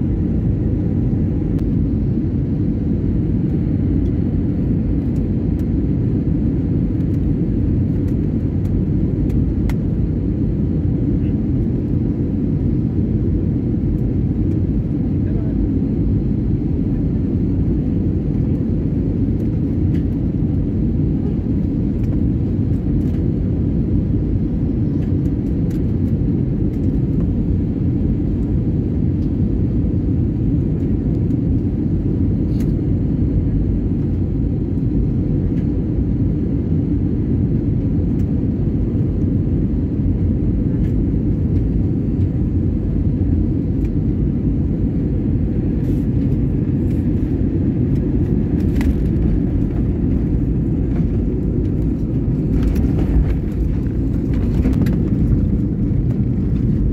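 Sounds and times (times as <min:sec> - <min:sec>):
jet airliner cabin rumble: 0:00.0 - 0:56.9.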